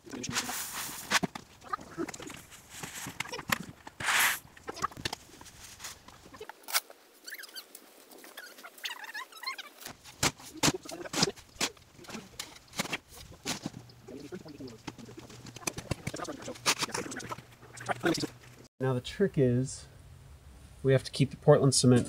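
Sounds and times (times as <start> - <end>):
faint squeaks: 7.2 - 18.7.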